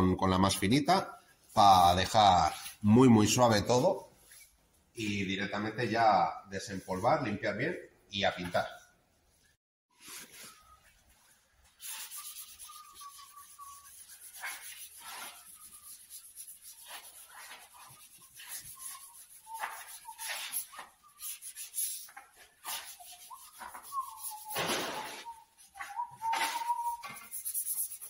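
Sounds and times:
sanding sponge rubbing metal: 11.7 - 28.0.

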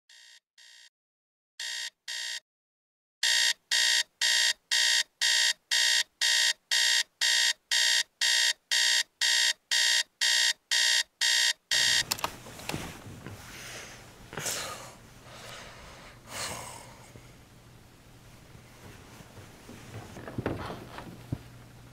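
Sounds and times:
digital alarm clock beeping: 1.6 - 2.4, 3.2 - 12.0
soft rustling: 12.3 - 13.7, 18.2 - 21.6.

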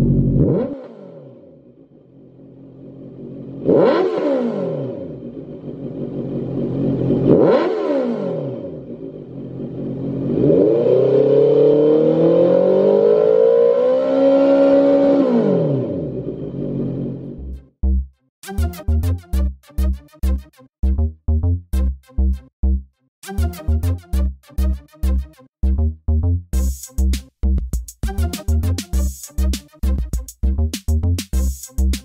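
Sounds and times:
motorcycle engine revving: 0.0 - 17.6.

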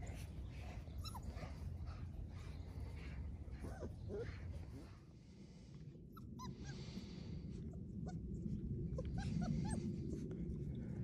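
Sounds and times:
low steady rumble: 0.0 - 11.0
puppies whimpering and yipping: 0.7 - 1.7, 3.5 - 4.8, 6.1 - 6.8, 8.9 - 10.2.

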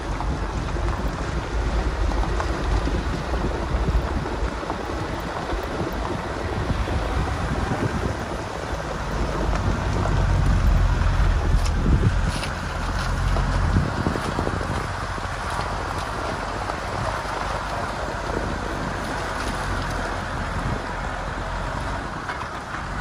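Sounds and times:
off-road vehicle engine rumble: 0.0 - 23.0
wind noise on microphone: 0.0 - 23.0.

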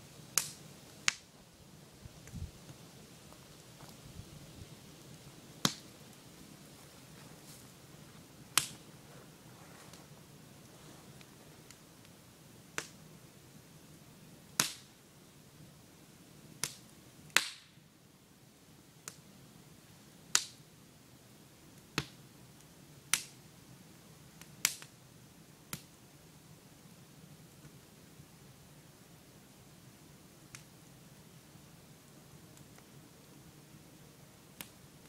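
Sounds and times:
campfire crackling and popping: 0.1 - 35.0.

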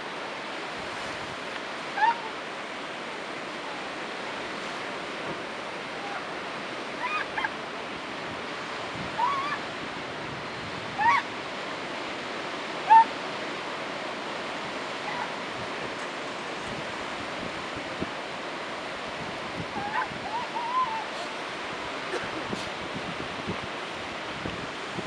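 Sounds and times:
surf on rocky shore: 0.0 - 25.0
seals yelping: 1.9 - 2.4, 7.0 - 7.6, 9.2 - 9.6, 11.0 - 11.3, 12.8 - 13.1, 19.7 - 21.4.

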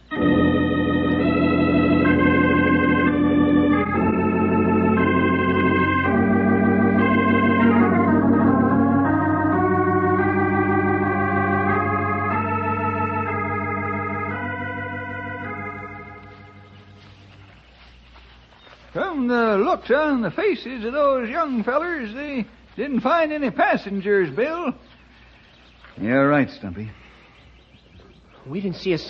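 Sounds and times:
organ playing sustained chords: 0.0 - 29.0.

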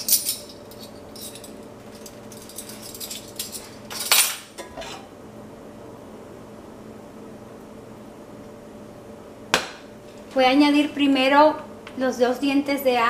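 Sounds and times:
spoons clattering down: 0.0 - 4.9.

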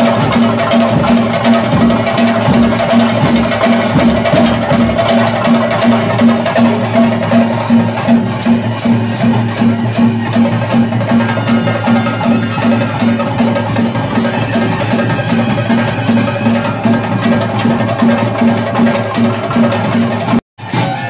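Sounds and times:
drums and percussion: 0.0 - 21.0.

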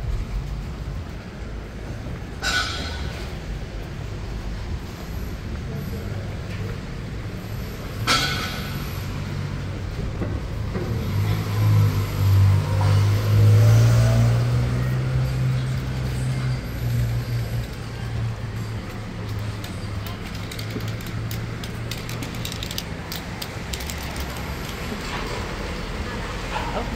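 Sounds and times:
heavy vehicle engine passing: 8.7 - 26.9.

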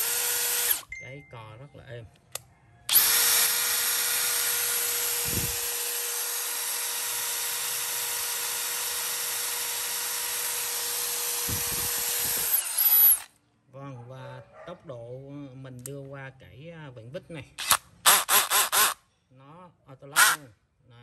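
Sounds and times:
cordless drill whining: 0.0 - 0.9, 2.9 - 13.3, 17.6 - 19.0, 20.2 - 20.4.

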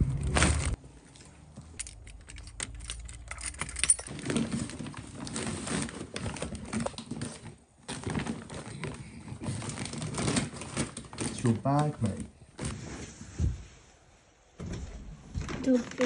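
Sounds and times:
light jingling and clicks: 1.7 - 4.1
plastic bag crinkling: 4.0 - 12.2
blankets rustling: 12.5 - 16.0.

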